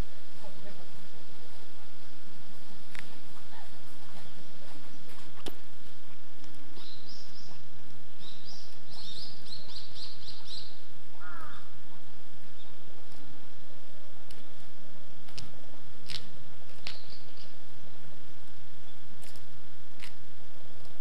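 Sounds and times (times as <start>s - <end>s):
steady background hiss: 0.0s - 21.0s
small birds chirping: 2.6s - 13.3s, 14.3s - 17.6s, 18.8s - 19.4s.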